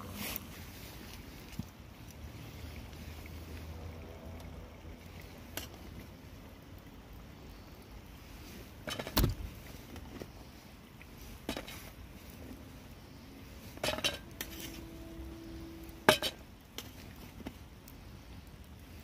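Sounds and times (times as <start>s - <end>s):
metal utensil clinking on enamel plate: 13.8s - 14.6s.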